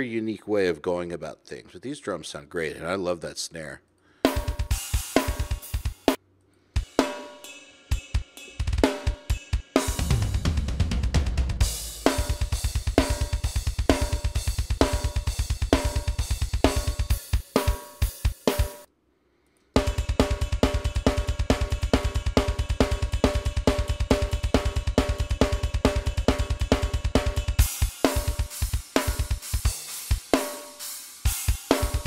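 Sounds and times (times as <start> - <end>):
fast double-bass kick runs: 10.0 - 17.2
cymbals: 19.8 - 32.0.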